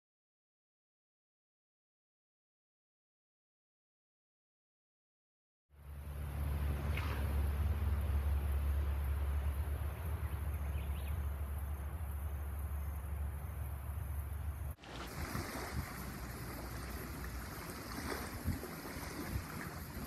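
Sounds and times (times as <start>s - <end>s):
wind buffeting microphone: 14.8s - 20.0s.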